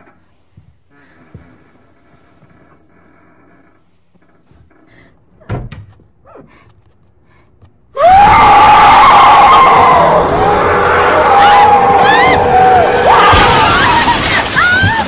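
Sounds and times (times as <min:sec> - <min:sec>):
woman screaming: 0:11.2 - 0:15.0.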